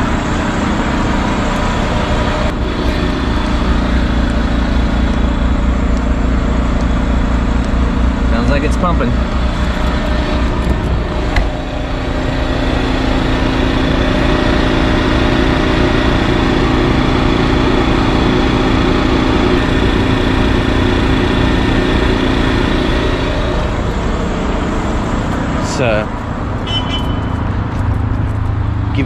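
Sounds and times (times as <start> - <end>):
generator engine running: 0.0 - 29.0
level-pitched hum: 0.0 - 29.0.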